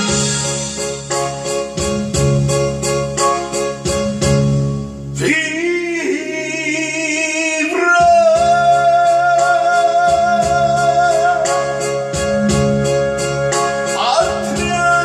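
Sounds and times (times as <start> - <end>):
keyboard backing track: 0.0 - 15.0
man singing into microphone: 5.2 - 12.2, 13.9 - 15.0.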